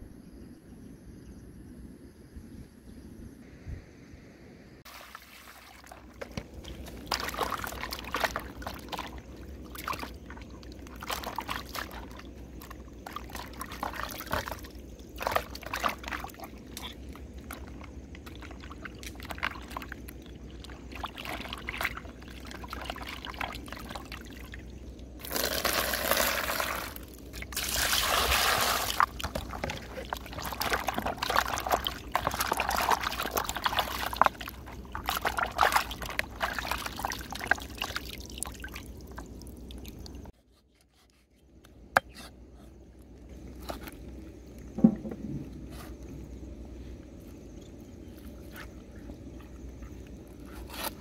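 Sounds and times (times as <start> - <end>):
hands scrubbing and rinsing: 4.9 - 24.5, 26.7 - 40.3
water pouring and splashing in basin: 4.9 - 40.3.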